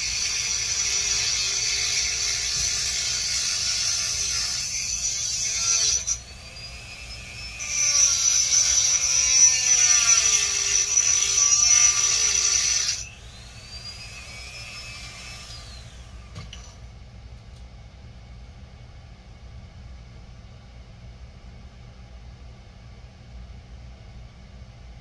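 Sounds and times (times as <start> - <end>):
rotary tool whining and grinding: 0.0 - 16.8.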